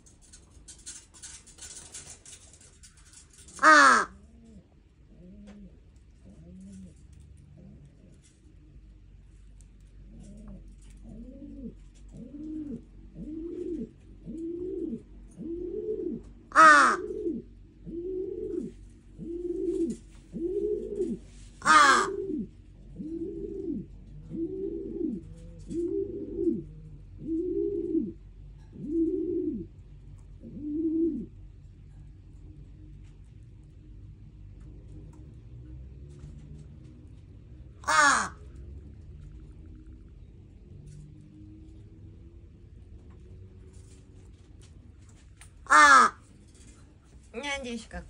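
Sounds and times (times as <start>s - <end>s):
crow cooing softly: 3.5s - 8.3s, 10.0s - 31.4s, 37.8s - 38.8s, 45.6s - 46.3s
crow harsh caw: 3.6s - 4.2s, 16.5s - 17.1s, 21.6s - 22.2s, 37.8s - 38.4s, 45.7s - 46.2s.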